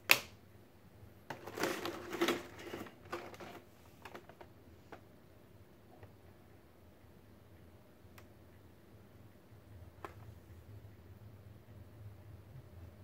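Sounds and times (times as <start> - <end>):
plastic tray crackling and clicking: 1.3 - 5.0.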